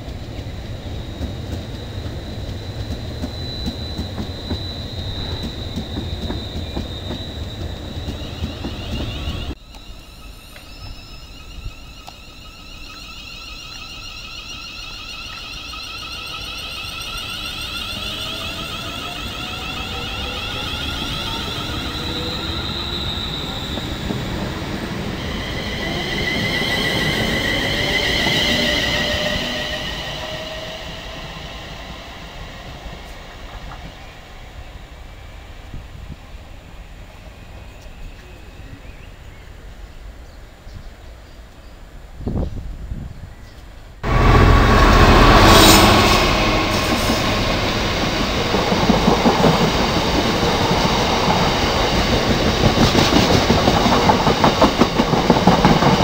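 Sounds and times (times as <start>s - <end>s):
electric train whine rising: 0.0s - 39.8s, 44.0s - 56.0s.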